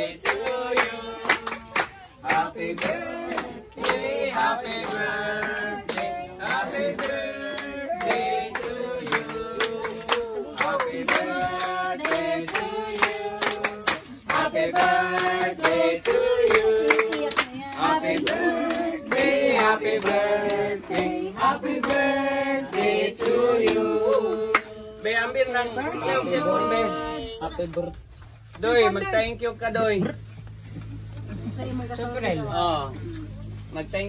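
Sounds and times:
group singing: 0.0s - 27.7s
hand clapping: 0.2s - 24.7s.

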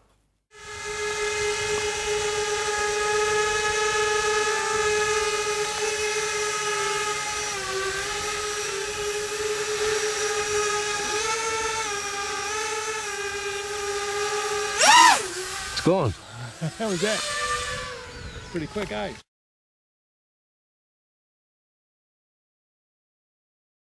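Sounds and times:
quadcopter propellers whining: 0.5s - 19.3s.

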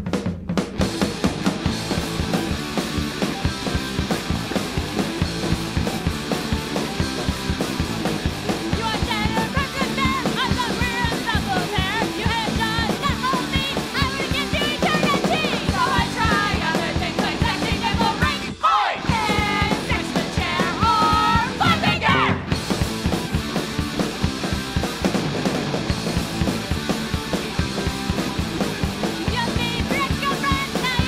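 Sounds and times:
drum intro: 0.0s - 31.0s
punk rock band playing: 0.0s - 31.0s
person singing: 8.8s - 22.4s.

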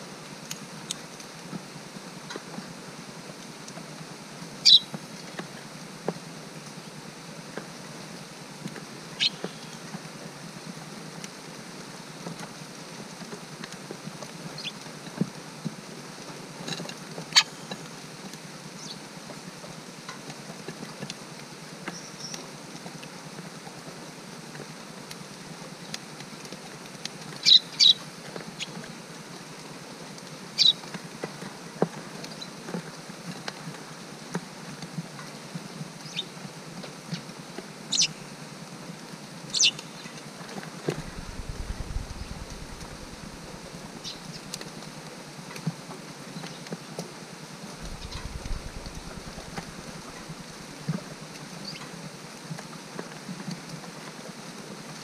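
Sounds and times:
rain pattering: 40.6s - 45.0s, 47.8s - 54.1s.

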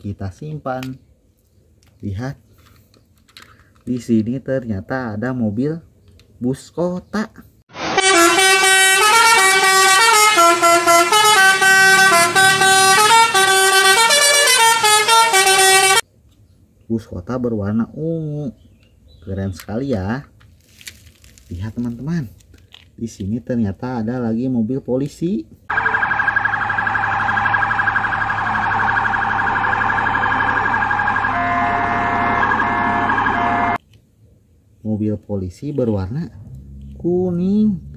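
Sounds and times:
toy electronic tune: 25.7s - 33.8s.

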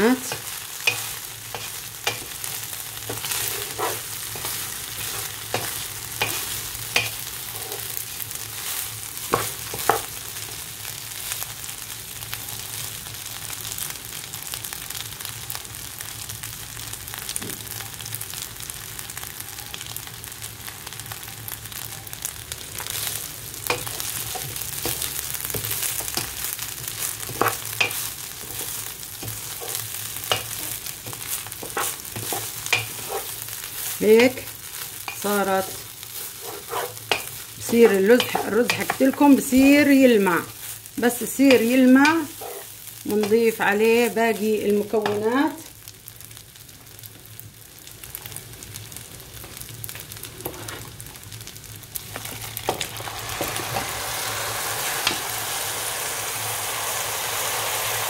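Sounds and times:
rice sizzling in ghee: 0.0s - 58.0s
spatula scraping pot: 3.0s - 7.9s, 23.7s - 33.4s, 35.1s - 39.6s, 41.5s - 43.4s.

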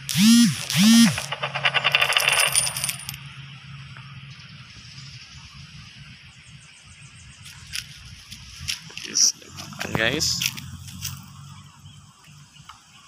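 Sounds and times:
loud rapid rattle: 0.1s - 3.2s.

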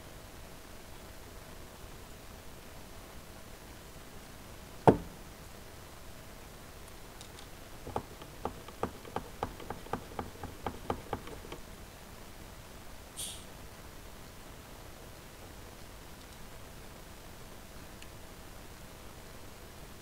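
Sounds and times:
machine knocking on table: 4.9s - 5.2s, 7.8s - 11.6s
plastic clicks: 7.2s - 11.6s.

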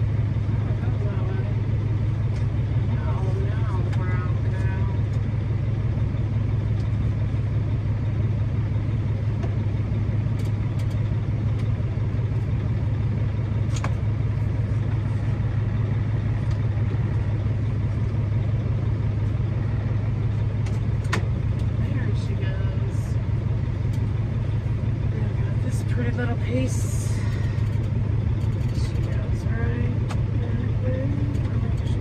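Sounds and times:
diesel engine idling: 0.0s - 32.0s
light clicks of dash parts: 6.7s - 7.0s, 9.3s - 11.8s, 13.6s - 14.1s, 16.4s - 16.7s, 20.3s - 21.9s, 23.8s - 24.1s, 27.2s - 29.3s, 30.0s - 30.4s, 31.1s - 32.0s.

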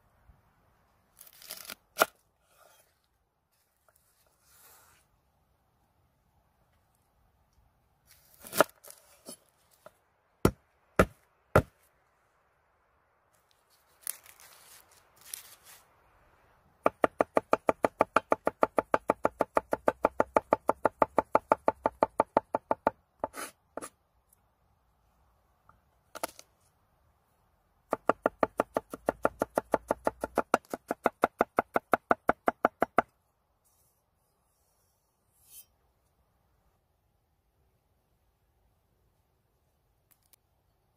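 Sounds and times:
knife chopping on wooden board: 10.4s - 11.7s.

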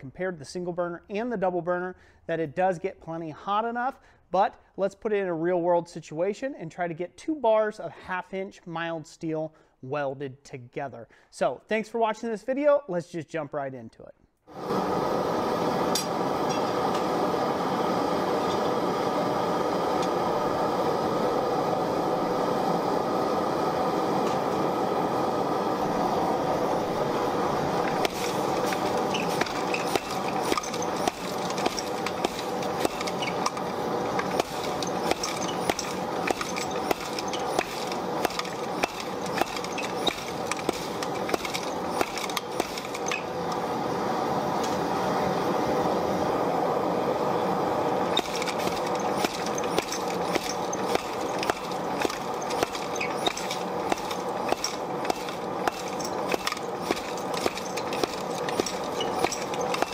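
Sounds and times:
hammer blows on steel anvil: 27.8s - 43.2s.

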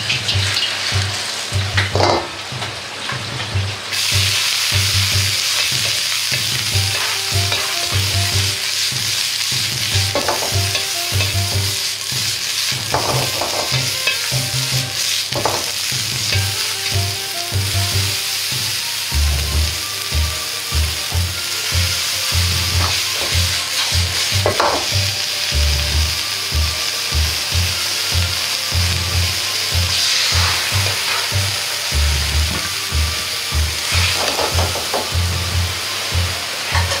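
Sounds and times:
vegetables sizzling in a wok: 0.0s - 37.0s
metal ladle in a wok: 5.3s - 16.6s.

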